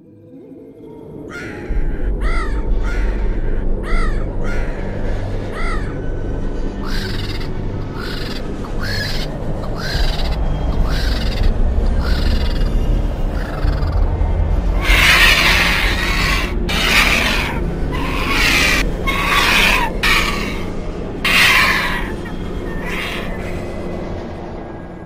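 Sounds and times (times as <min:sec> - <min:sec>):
low steady drone: 0:00.0 - 0:25.0
crows cawing: 0:01.3 - 0:23.8.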